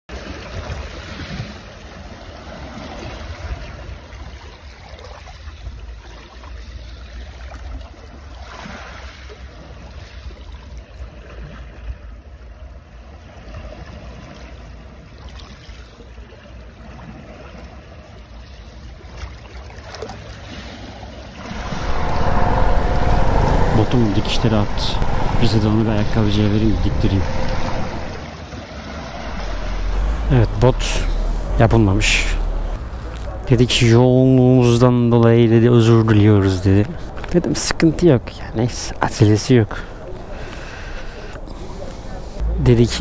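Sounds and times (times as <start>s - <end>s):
wind buffeting microphone: 21.3s - 34.5s.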